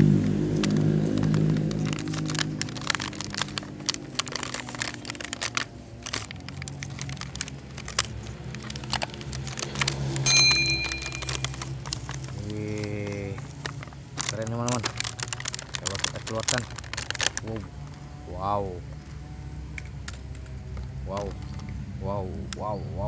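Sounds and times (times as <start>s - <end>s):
plastic packaging being torn: 0.4s - 10.2s, 11.3s - 18.0s
ringing bell chime: 10.3s - 11.6s.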